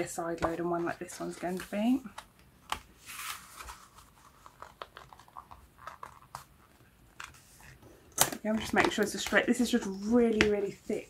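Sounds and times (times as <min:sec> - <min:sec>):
paper sliding rustles: 0:03.0 - 0:06.4.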